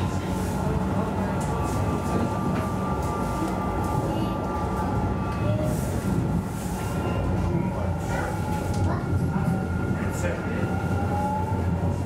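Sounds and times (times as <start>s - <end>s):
tram running gear rumble: 0.0s - 12.0s.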